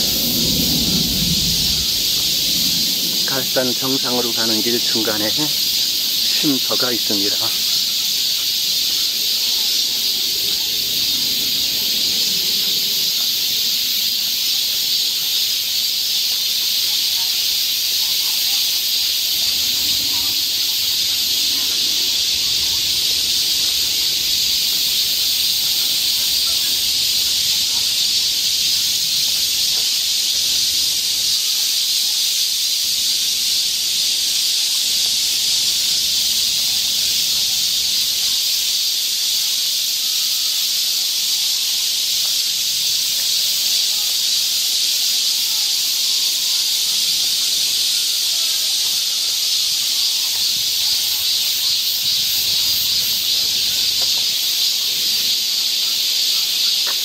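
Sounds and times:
cicadas buzzing: 0:00.0 - 0:57.0.

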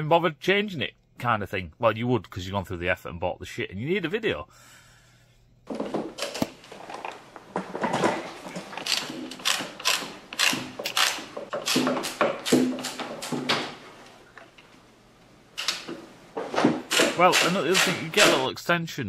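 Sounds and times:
socket ratchet clicking: 0:08.8 - 0:12.2.

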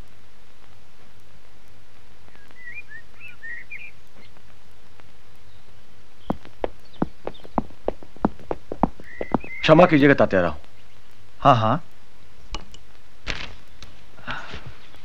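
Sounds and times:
horse hooves clip-clopping: 0:00.0 - 0:11.2
small bird chirping: 0:02.3 - 0:11.7, 0:14.7 - 0:15.0.

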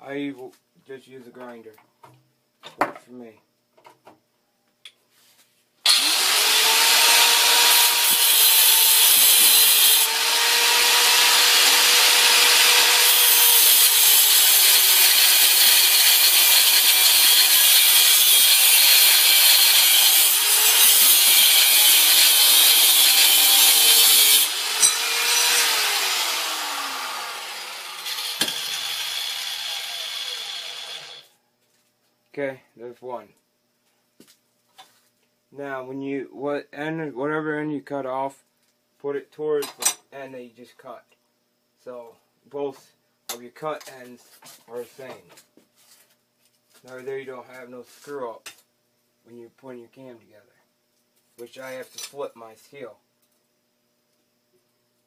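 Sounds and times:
angle grinder cutting steel: 0:05.9 - 0:31.3.

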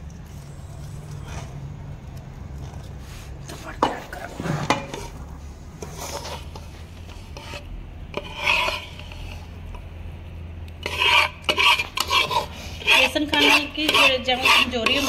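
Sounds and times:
flour scraped in metal pan: 0:03.1 - 0:05.2, 0:05.8 - 0:09.6, 0:10.8 - 0:15.0.

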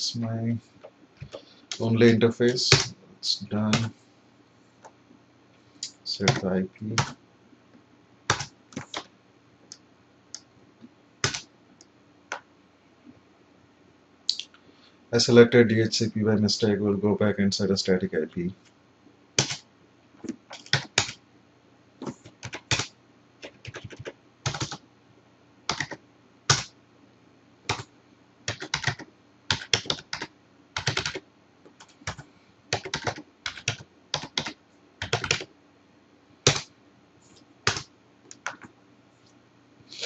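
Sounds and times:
computer keyboard typing: 0:06.2 - 0:07.2, 0:08.3 - 0:09.1, 0:11.2 - 0:11.4, 0:19.4 - 0:19.6, 0:20.5 - 0:21.2, 0:22.0 - 0:24.8, 0:25.7 - 0:26.7, 0:27.7 - 0:27.9, 0:28.5 - 0:31.2, 0:31.8 - 0:35.5, 0:36.5 - 0:36.7, 0:37.6 - 0:38.7.

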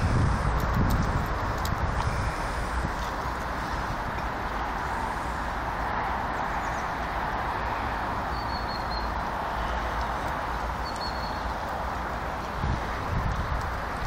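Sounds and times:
wind on microphone: 0:00.0 - 0:07.6, 0:11.5 - 0:14.0
faint high chirp: 0:08.3 - 0:09.2, 0:10.8 - 0:11.4.

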